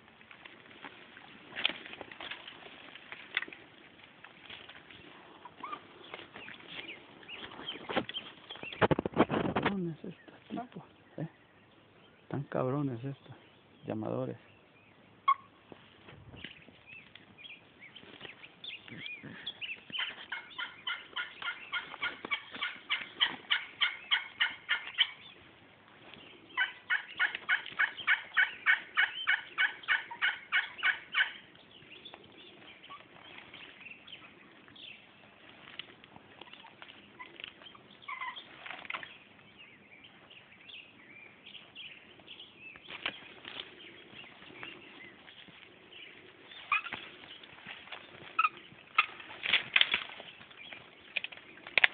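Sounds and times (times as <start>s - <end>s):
turkey call yelps: 15.2s - 15.6s, 20.0s - 25.2s, 26.6s - 31.4s, 38.1s - 38.4s, 46.7s - 47.0s, 48.4s - 49.1s.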